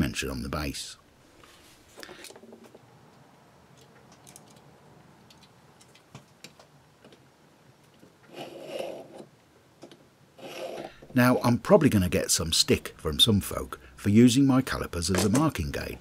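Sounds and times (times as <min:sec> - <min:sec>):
metal scratching on steel: 0:08.3 - 0:09.3, 0:10.4 - 0:11.0.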